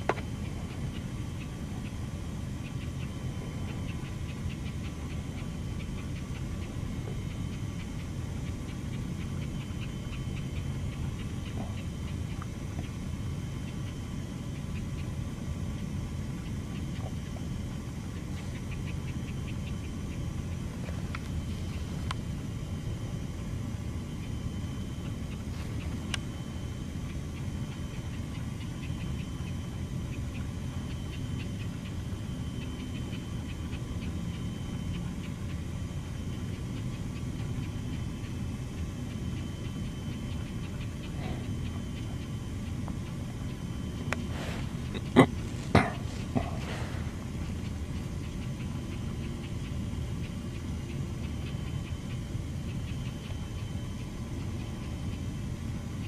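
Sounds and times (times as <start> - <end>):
steady low rumble: 0.0 - 56.0
rapid high ticking: 18.1 - 56.0.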